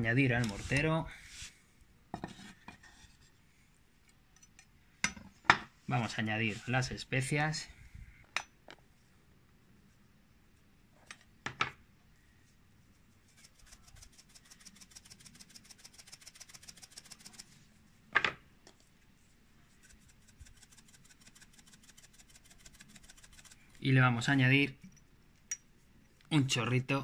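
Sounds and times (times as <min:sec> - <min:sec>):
spices shaken into mortar: 0:13.4 - 0:17.5.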